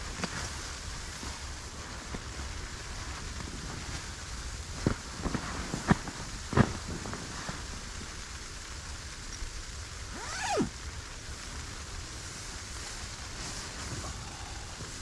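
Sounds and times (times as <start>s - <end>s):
wind hissing against tent: 0.0s - 15.0s
sleeping bag rustling: 10.1s - 10.7s, 12.8s - 15.0s.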